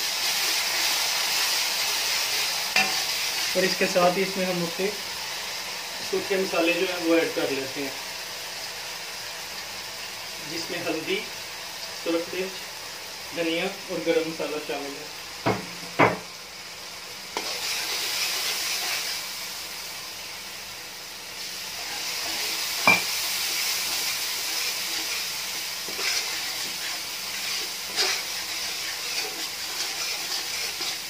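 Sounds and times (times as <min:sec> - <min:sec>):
masala sizzling in a metal pan: 0:00.0 - 0:31.0
fork clinking on a pan: 0:22.8 - 0:23.1.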